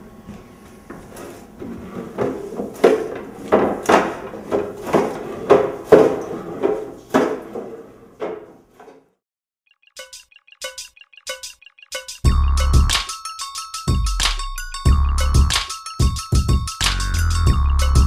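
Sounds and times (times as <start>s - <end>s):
mop knocking and scraping floor: 0.2s - 9.1s.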